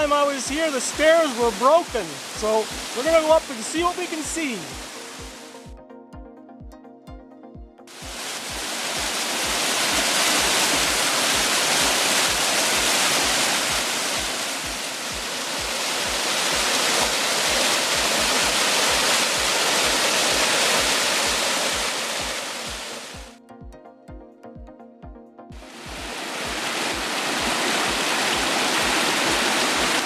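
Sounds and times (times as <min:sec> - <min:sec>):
waterfall rushing over rocks: 0:00.0 - 0:05.6, 0:07.9 - 0:23.3, 0:25.6 - 0:30.0
background music with low beat: 0:00.0 - 0:11.5, 0:21.3 - 0:29.4.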